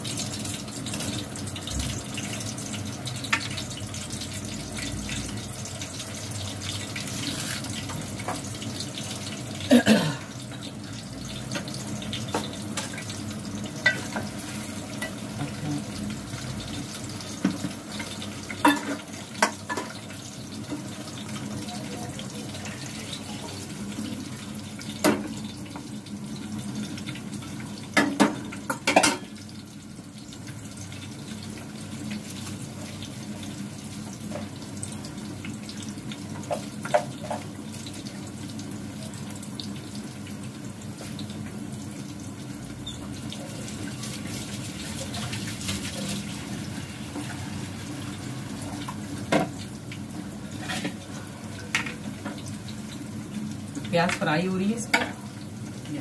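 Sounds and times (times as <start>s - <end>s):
onions sizzling in oil: 0.0s - 56.0s
utensils knocking on pots: 18.6s - 20.0s.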